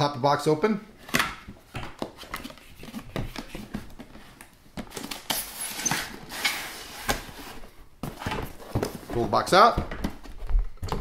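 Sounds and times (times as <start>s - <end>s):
cardboard boxes scraping together: 5.4s - 9.1s.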